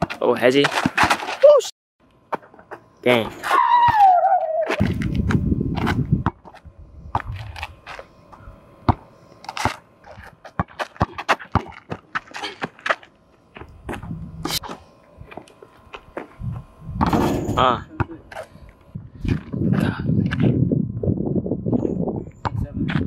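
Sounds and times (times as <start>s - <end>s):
basketball bouncing on asphalt: 0.0s - 1.3s, 4.8s - 7.6s, 8.8s - 14.2s
sneakers scuffing: 7.2s - 16.8s.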